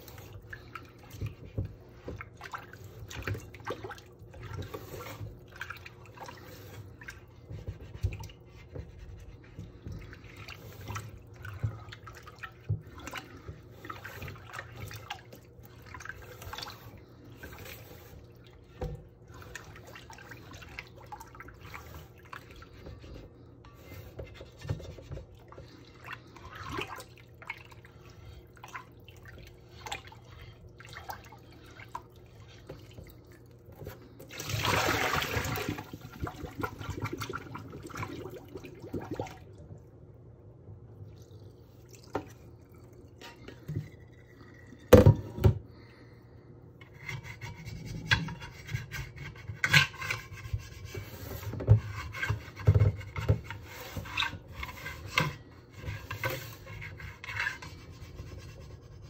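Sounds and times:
soapy water splashing in a pot: 0.0s - 46.1s, 46.7s - 59.0s.

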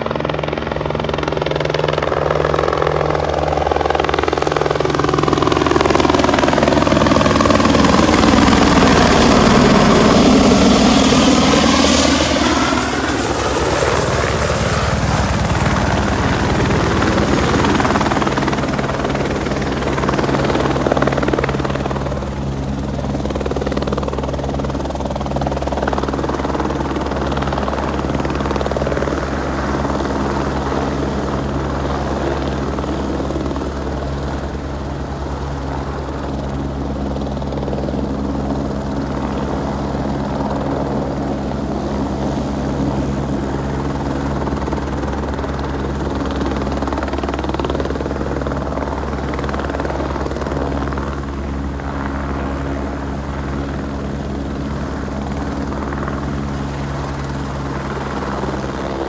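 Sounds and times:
helicopter rotor throb: 0.0s - 59.0s
helicopter turbine noise: 0.0s - 59.0s.

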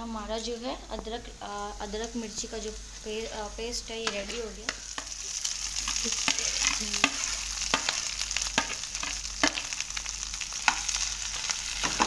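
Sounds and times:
potatoes sizzling in oil: 0.1s - 12.0s
spatula knocking and scraping pan: 5.9s - 9.7s, 11.8s - 12.0s.

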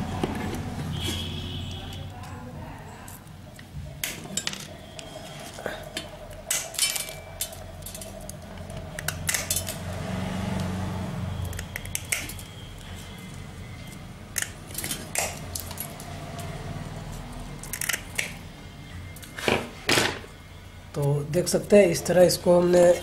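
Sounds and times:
pliers cracking porcelain: 6.0s - 9.8s, 14.3s - 16.0s, 17.6s - 18.4s.

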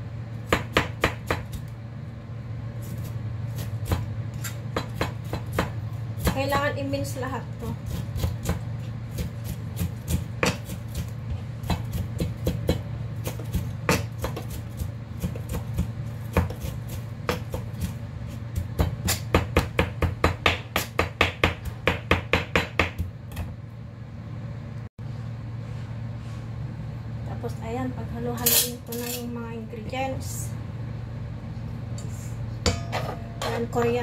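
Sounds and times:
steady low hum: 0.0s - 34.0s
knife chopping on plastic board: 4.7s - 6.4s, 7.9s - 17.9s, 18.6s - 23.5s.

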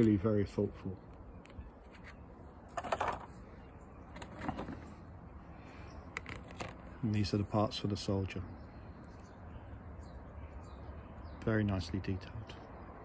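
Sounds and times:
plastic parts rustling: 2.7s - 3.3s.

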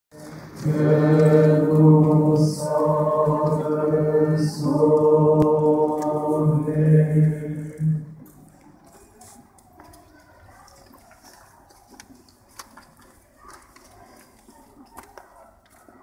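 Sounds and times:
unaccompanied religious chant: 0.1s - 8.4s.

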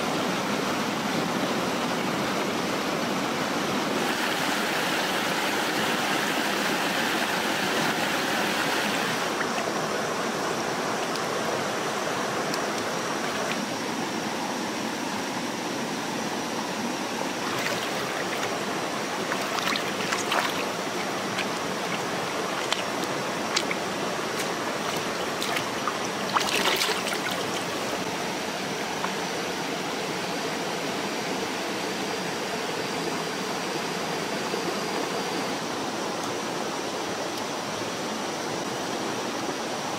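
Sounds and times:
stream water rushing over rocks: 0.0s - 39.9s
splashes of rinsing lettuce: 17.4s - 28.1s.

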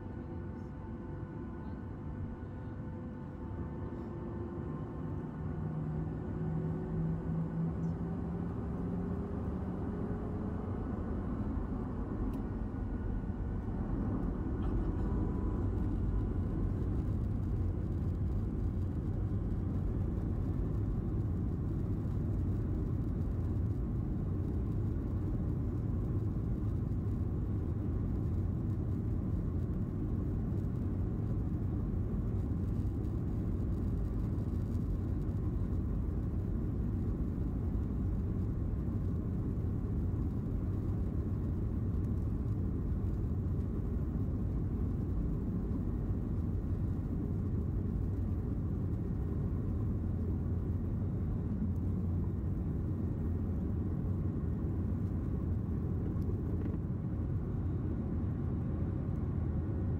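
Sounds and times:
airplane cabin low rumble: 0.0s - 59.9s.

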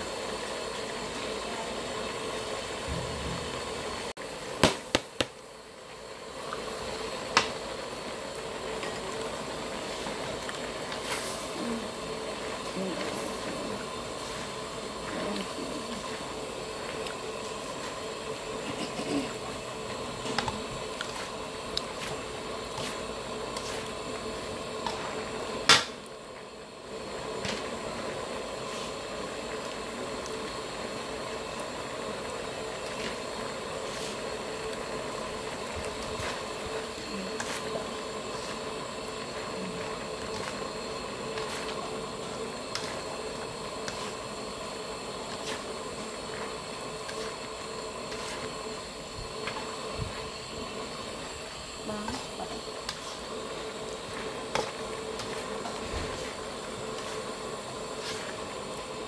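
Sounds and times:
constant hum: 0.0s - 59.0s
food sizzling in a wok: 0.0s - 59.0s.

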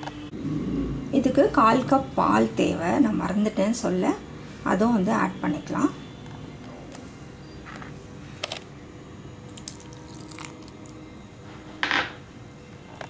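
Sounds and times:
batter squishing: 9.5s - 11.0s.

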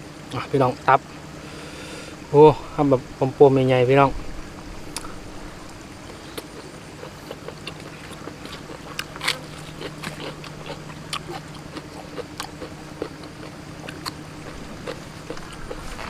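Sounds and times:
steady low hum: 0.0s - 16.0s
man chewing wetly: 4.8s - 16.0s.

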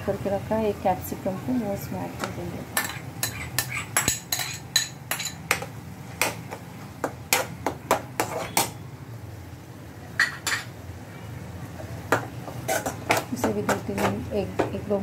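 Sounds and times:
metal spoon scraping a pan: 2.8s - 5.5s, 8.2s - 8.8s, 12.5s - 14.3s.

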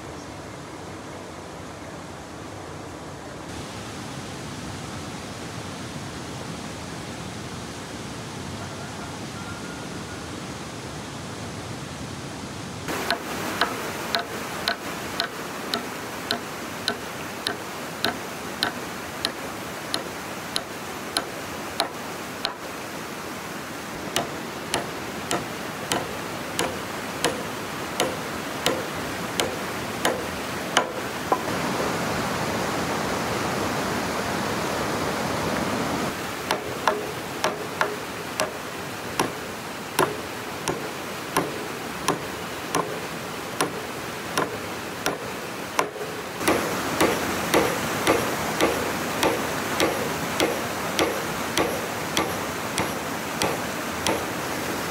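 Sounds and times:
constant rushing hiss: 0.0s - 54.9s
hand tool striking wood: 13.0s - 22.8s, 24.0s - 31.5s, 36.5s - 39.4s, 40.0s - 54.5s.

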